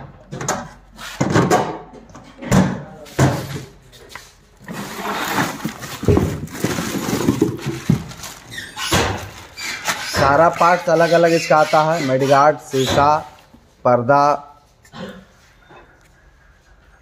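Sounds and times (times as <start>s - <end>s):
knocks and handling noises: 0.0s - 10.9s
plastic wrap and cardboard crinkling: 4.3s - 10.9s.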